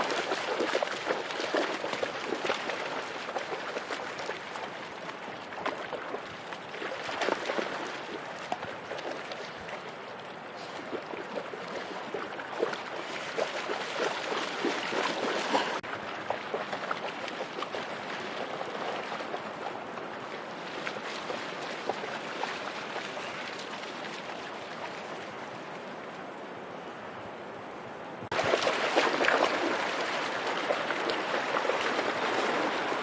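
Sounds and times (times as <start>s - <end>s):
dog splashing in water: 0.0s - 10.0s, 10.6s - 25.1s, 28.3s - 33.0s
river water rushing over rocks: 28.3s - 33.0s.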